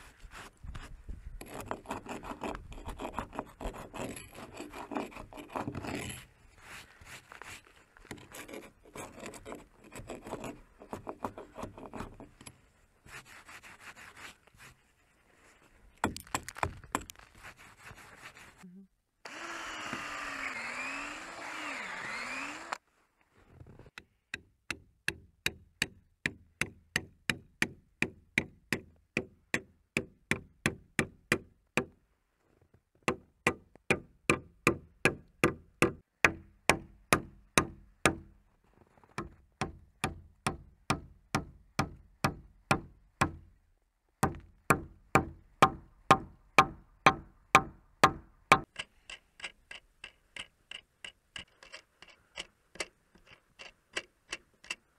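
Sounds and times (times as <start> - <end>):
power drill drilling into wood: 19.2 - 22.8.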